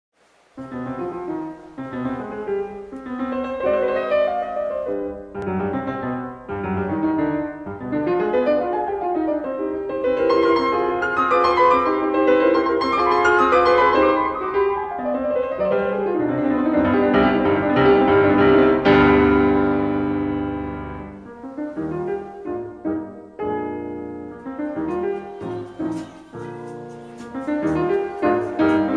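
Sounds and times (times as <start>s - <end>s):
piano music: 0.6s - 28.9s.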